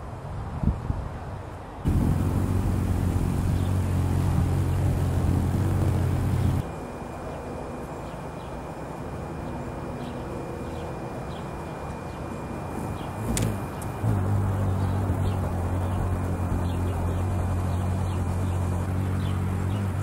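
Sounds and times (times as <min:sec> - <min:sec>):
hummingbird wings humming: 0:01.9 - 0:20.0.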